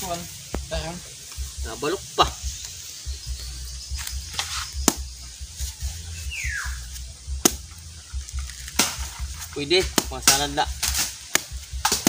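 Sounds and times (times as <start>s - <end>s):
knife chopping coconut husk: 4.3s - 5.1s, 7.4s - 7.7s, 8.4s - 9.2s, 9.8s - 12.0s
falling whistle-like call: 6.2s - 6.9s.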